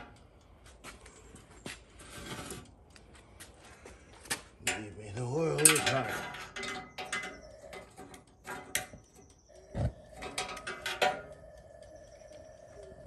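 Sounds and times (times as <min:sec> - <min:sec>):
gas valve clicking and ratcheting: 0:00.0 - 0:00.5, 0:04.4 - 0:13.0.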